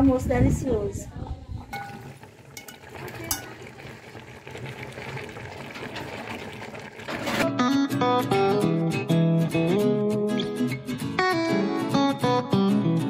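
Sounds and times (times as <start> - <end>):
porridge bubbling in a pot: 1.7 - 7.4.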